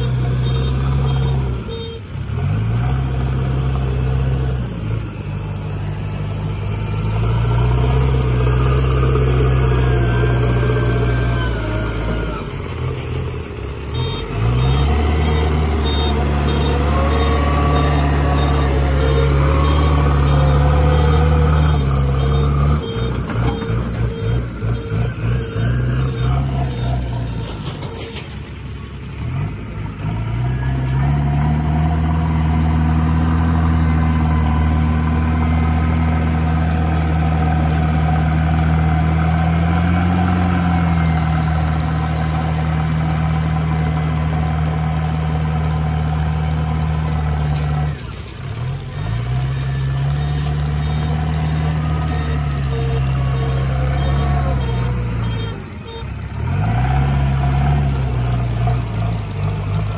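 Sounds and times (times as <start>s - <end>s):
diesel engine under load: 0.0s - 59.9s.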